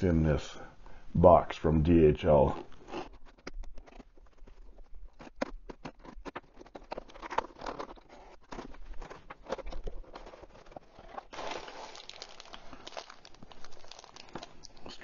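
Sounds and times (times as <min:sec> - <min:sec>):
cardboard box tearing rustle: 0:06.8 - 0:13.3.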